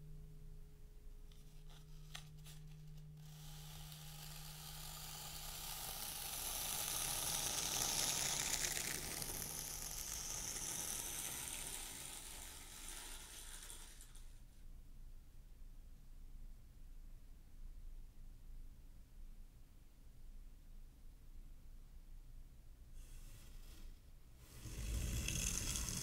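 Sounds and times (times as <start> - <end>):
tool scraping through sand: 1.6 - 14.3, 23.0 - 26.0.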